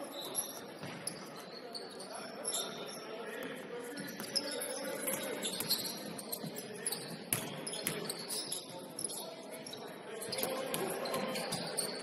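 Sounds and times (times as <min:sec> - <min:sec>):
voices in background: 0:00.0 - 0:12.0
sneaker squeaks and knocks: 0:00.1 - 0:02.9, 0:04.0 - 0:12.0.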